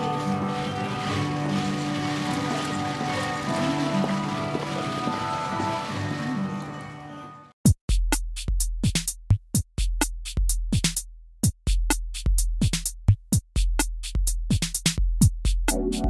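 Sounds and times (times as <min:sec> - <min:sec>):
drum machine hits: 0:07.6 - 0:16.0.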